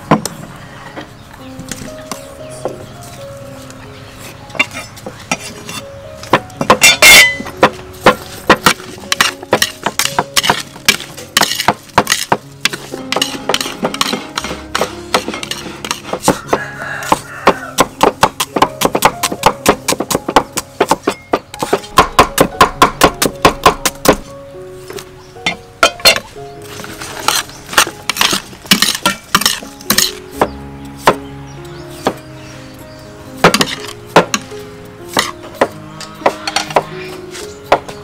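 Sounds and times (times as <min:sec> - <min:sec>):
soft background music: 0:00.0 - 0:38.0
cleaver chopping on wooden board: 0:06.2 - 0:24.3, 0:27.2 - 0:31.3, 0:33.4 - 0:34.5, 0:35.1 - 0:36.9
spoon and dish clinks: 0:06.8 - 0:07.5.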